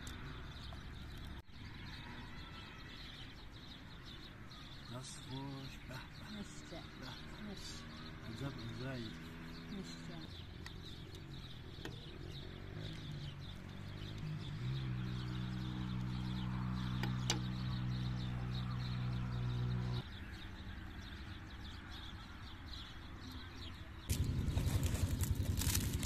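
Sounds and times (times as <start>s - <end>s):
birds chirping: 0.0s - 26.0s
low motor hum: 8.2s - 20.2s, 24.1s - 26.0s.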